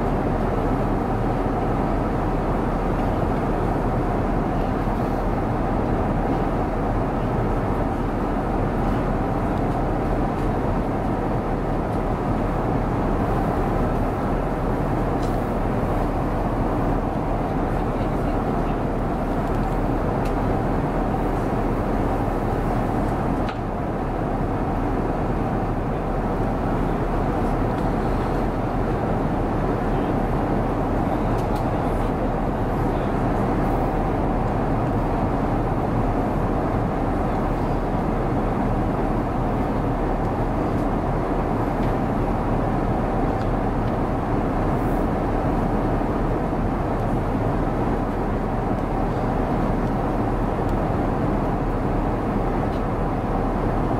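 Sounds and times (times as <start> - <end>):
airplane cabin noise: 0.0 - 53.9.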